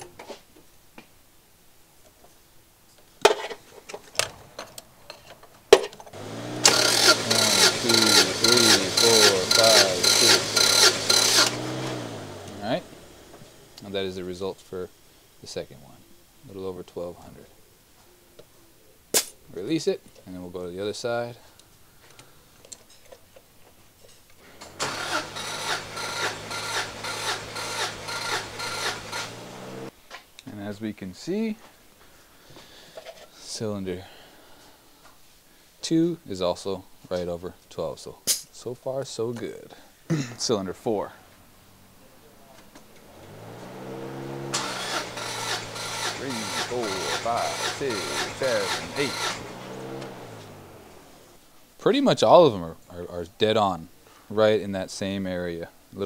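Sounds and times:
starter motor cranking engine: 6.1s - 13.8s, 24.4s - 29.9s, 42.8s - 51.4s.

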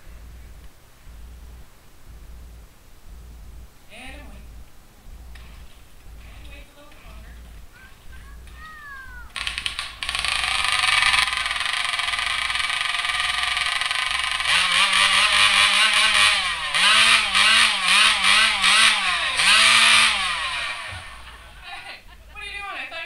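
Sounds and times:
chainsaw cutting log: 9.3s - 21.6s.

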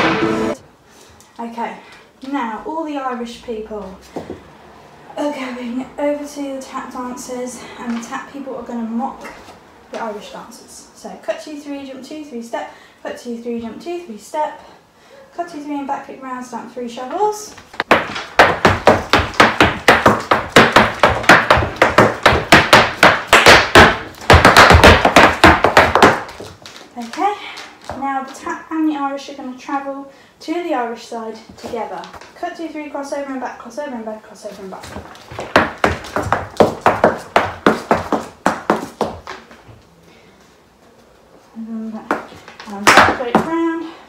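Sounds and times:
hard shoes tapping on floor: 17.6s - 27.2s, 34.7s - 39.8s.

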